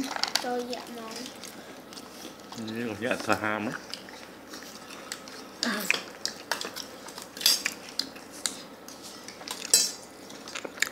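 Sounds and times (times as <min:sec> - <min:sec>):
utensils clinking on dishes: 0:05.6 - 0:07.8, 0:09.4 - 0:10.6.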